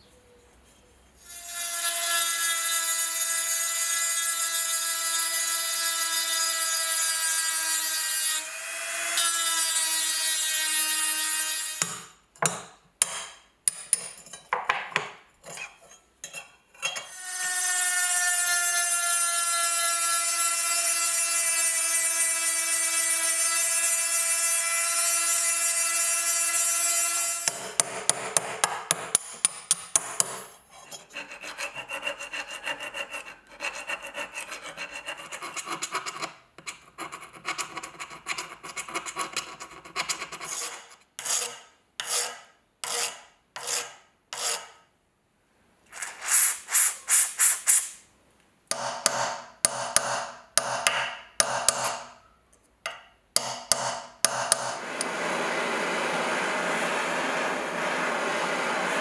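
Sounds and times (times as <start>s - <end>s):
hand rubbing metal: 45.9s - 48.0s.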